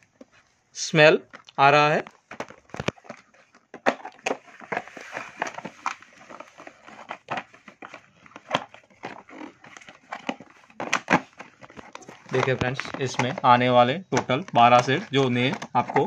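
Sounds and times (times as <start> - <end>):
plastic pots clicking and tapping: 1.2 - 16.0.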